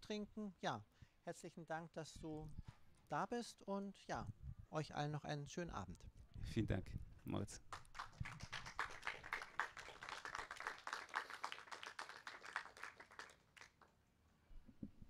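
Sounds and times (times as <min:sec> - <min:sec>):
small audience applauding: 0:07.5 - 0:13.9.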